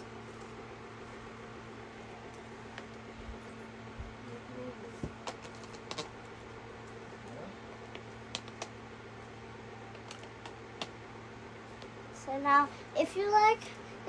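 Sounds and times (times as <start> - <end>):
faint steady hum: 0.0 - 14.0
paint tubes clicking in plastic tray: 7.9 - 8.7.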